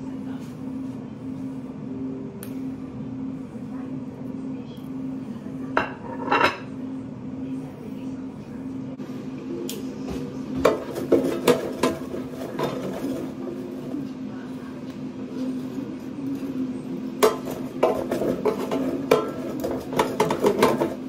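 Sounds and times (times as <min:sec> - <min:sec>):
steady low hum: 0:00.0 - 0:21.0
crockery and cookware clattering: 0:05.8 - 0:06.7, 0:10.6 - 0:13.4, 0:17.2 - 0:21.0.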